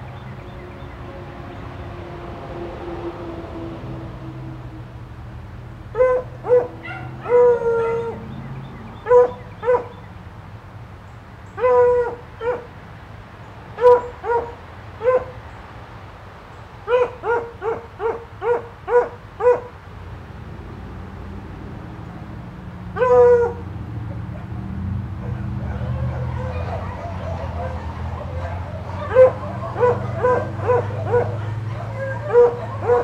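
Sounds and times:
dog barking: 6.0s - 8.2s, 9.0s - 10.0s, 11.6s - 12.7s, 13.8s - 15.4s, 16.9s - 19.7s, 23.0s - 23.6s, 25.2s - 33.0s.

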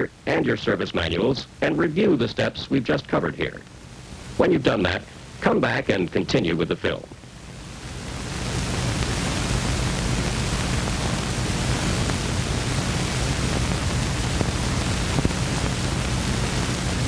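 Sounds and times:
film soundtrack hiss: 0.0s - 17.0s.

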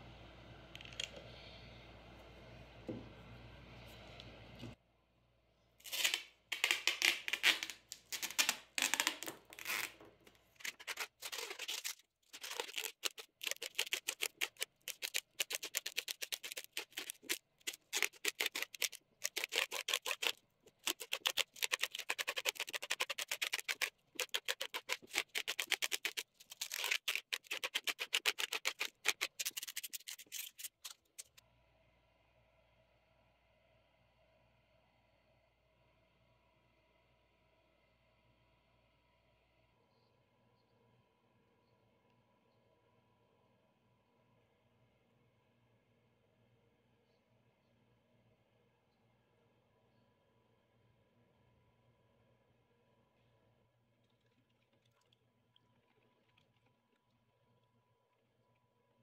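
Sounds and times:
packing tape pulled off roll: 5.8s - 31.4s.

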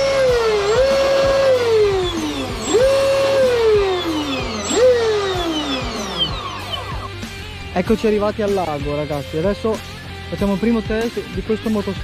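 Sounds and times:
electric motor whining: 0.0s - 8.9s
background music: 0.0s - 12.0s.

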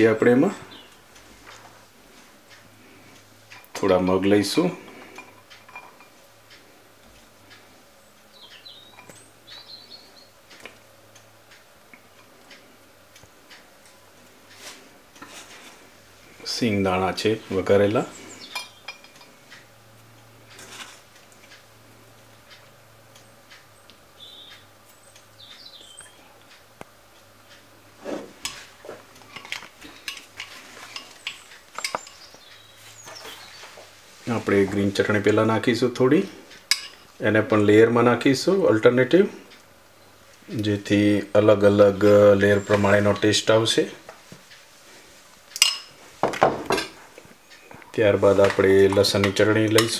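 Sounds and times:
metal spoon clinking against bowls: 4.8s - 6.2s, 18.4s - 19.3s, 29.3s - 32.3s, 36.7s - 37.1s, 45.6s - 46.0s, 48.4s - 49.9s.

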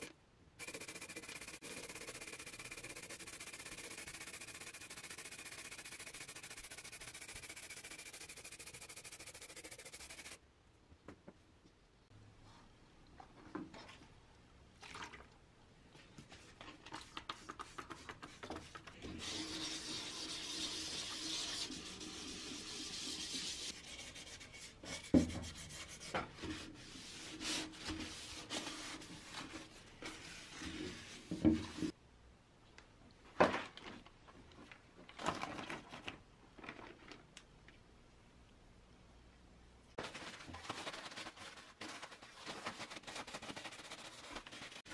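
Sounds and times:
sandpaper sanding metal: 0.0s - 10.4s, 19.2s - 26.1s.

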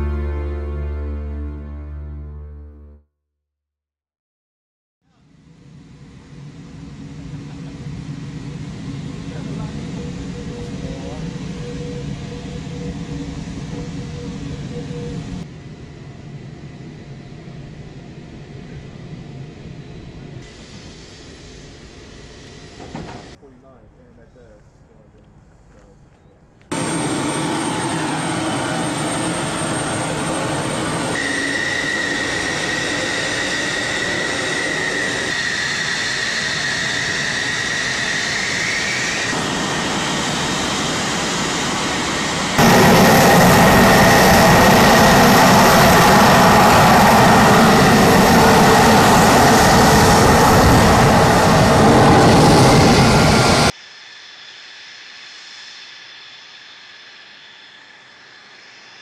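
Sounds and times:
jet engine running with high whine: 5.1s - 25.0s, 26.2s - 59.0s.

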